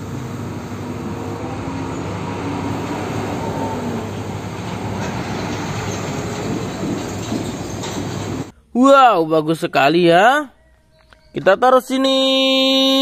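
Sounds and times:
diesel truck engine running: 0.0 - 8.5
tyre and road noise: 0.0 - 8.5.

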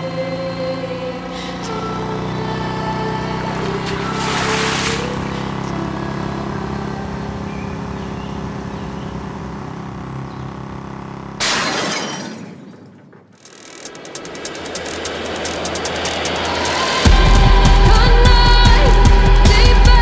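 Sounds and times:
low drone with held tones: 0.0 - 10.8, 14.0 - 20.0
loud crash: 11.4 - 17.5.

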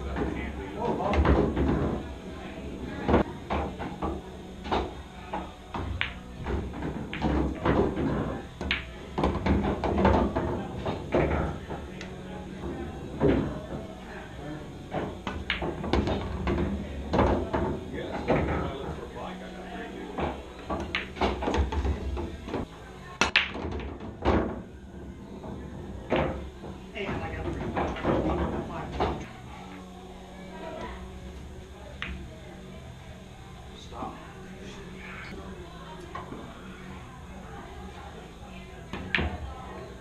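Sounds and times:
billiard balls clacking: 0.0 - 13.9, 14.9 - 19.2, 20.1 - 29.3
background room noise: 0.0 - 40.0
cue tip striking cue ball: 20.2 - 24.6.

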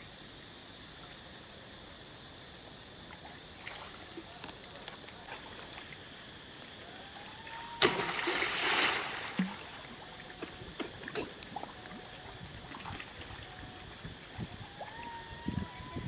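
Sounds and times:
monkeys splashing in water: 7.4 - 9.9.

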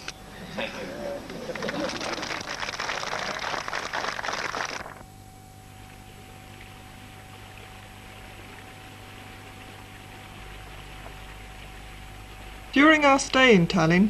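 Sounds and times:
faint steady whine: 0.0 - 14.0
steady low hum: 0.0 - 14.0
audience applauding: 0.9 - 5.0.

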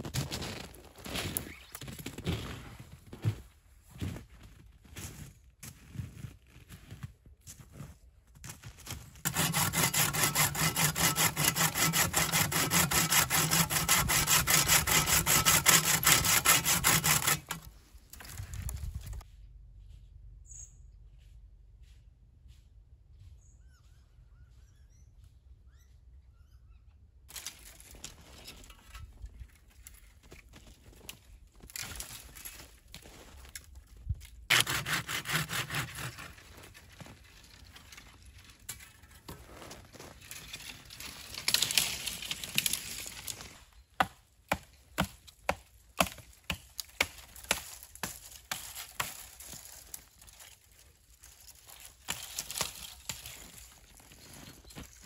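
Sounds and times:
hand saw rasping through saplings: 9.2 - 17.7, 34.5 - 38.0, 40.5 - 55.0.

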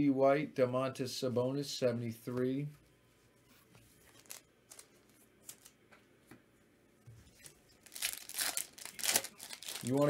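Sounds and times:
trading cards clicking and rustling: 4.0 - 5.8.

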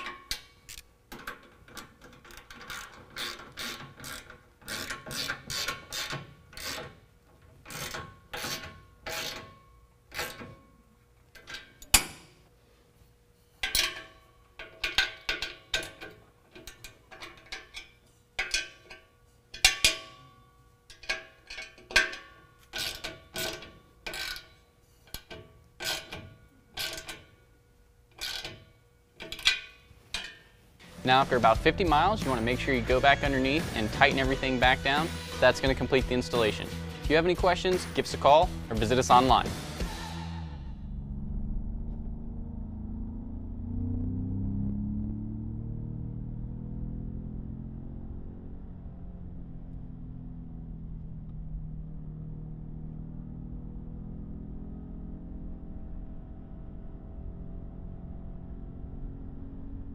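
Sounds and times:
ratchet wrench clicking: 0.3 - 6.9.

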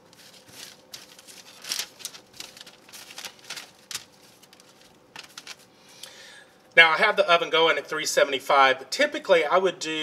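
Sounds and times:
parchment paper crinkling: 0.0 - 5.8
asparagus spears rustling: 0.0 - 6.0.

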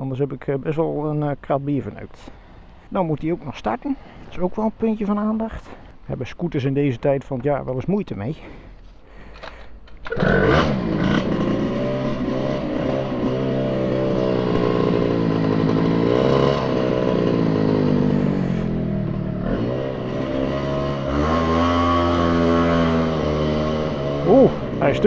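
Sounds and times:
scooter engine running: 10.0 - 25.0.

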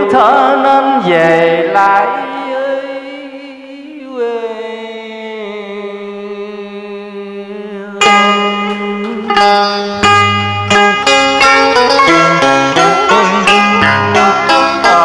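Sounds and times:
bright plucked string notes: 8.0 - 15.0
long held tone stepping down: 8.0 - 15.0.

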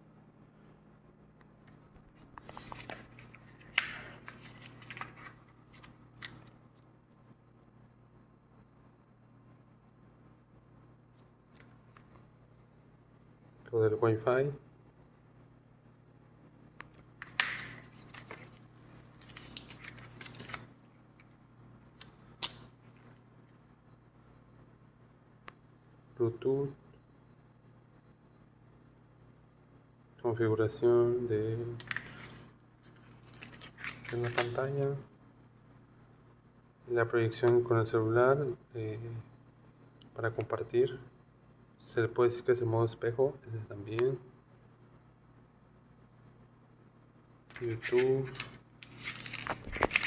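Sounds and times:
rustling and clicks of handling: 1.4 - 7.2, 16.8 - 23.7, 31.8 - 34.8, 47.5 - 50.0
rustling: 17.2 - 20.7, 47.5 - 50.0.

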